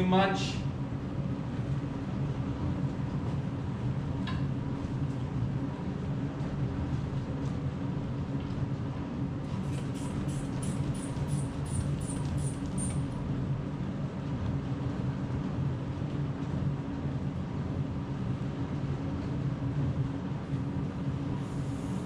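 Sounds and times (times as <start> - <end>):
treadmill motor and belt drone: 0.0 - 22.0
short high hissing ticks: 9.7 - 13.1.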